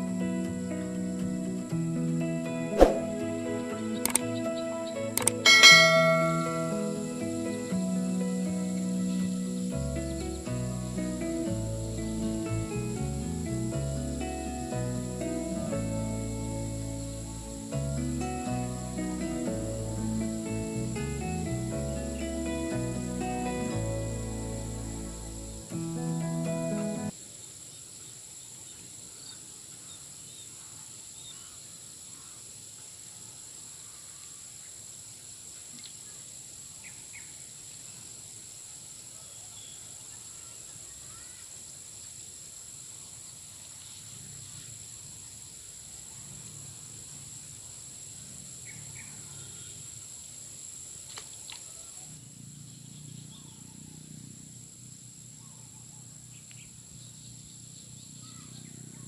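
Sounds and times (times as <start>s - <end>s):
insects droning: 0.0s - 59.0s
bird chirps: 3.9s - 10.5s.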